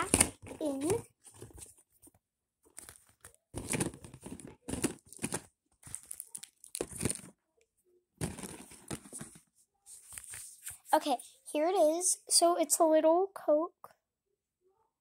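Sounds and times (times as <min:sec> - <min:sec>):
packaging crinkling: 0:02.7 - 0:07.3, 0:08.2 - 0:09.3.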